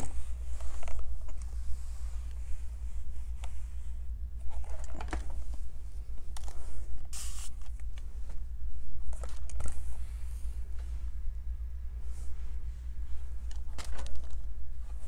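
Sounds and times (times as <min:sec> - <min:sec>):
light clicks and scrapes: 0:00.0 - 0:11.2, 0:12.0 - 0:15.0
steady low hum: 0:00.0 - 0:15.0.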